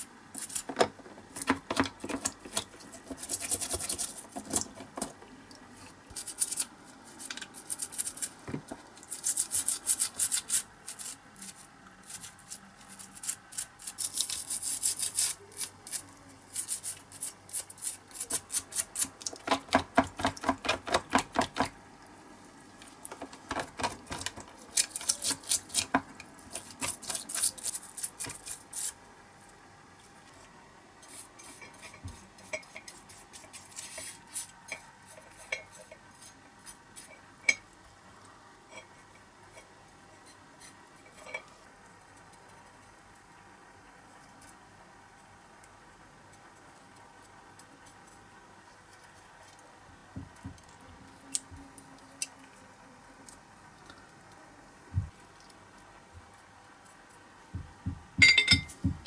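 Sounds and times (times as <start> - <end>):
toothbrush scrubbing metal: 2.1 - 4.8, 6.1 - 8.4, 9.0 - 19.6, 26.5 - 29.0, 31.0 - 37.6.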